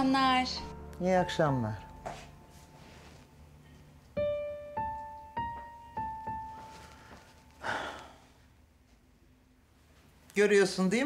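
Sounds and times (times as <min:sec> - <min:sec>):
slow piano notes: 0:00.0 - 0:08.4.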